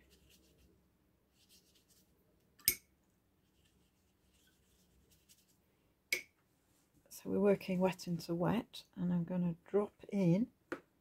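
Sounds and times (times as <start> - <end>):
brush scratching on paper: 0.0 - 2.1, 3.4 - 5.6.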